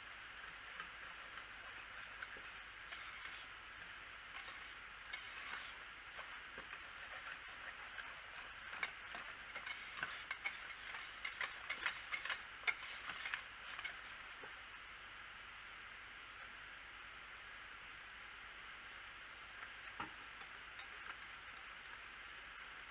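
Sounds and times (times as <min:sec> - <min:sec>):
metal whisk stirring thick paste: 0:00.4 - 0:14.1
whisk tapping ceramic pot: 0:00.4 - 0:14.1, 0:20.0 - 0:22.1.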